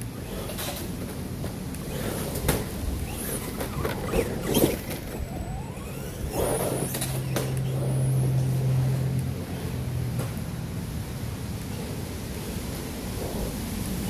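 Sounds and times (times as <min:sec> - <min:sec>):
steady low hum: 0:00.0 - 0:14.0
electric motor whining: 0:01.7 - 0:09.3.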